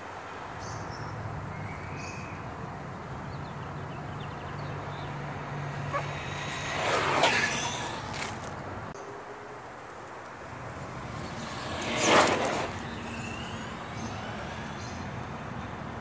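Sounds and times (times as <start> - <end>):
rc truck motor and tyres: 4.2 - 16.0.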